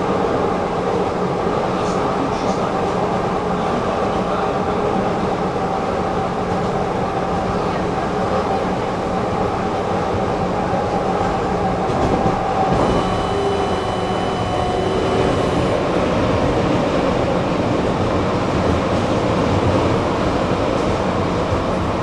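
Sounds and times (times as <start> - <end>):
tram wheels rumbling on rails: 0.0 - 22.0
thin high whine: 12.7 - 16.5.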